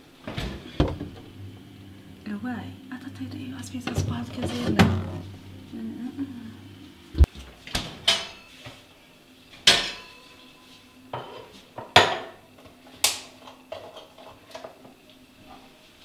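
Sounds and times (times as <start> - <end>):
dishes clattering on a counter: 7.8 - 8.8, 11.1 - 12.4, 13.4 - 14.8.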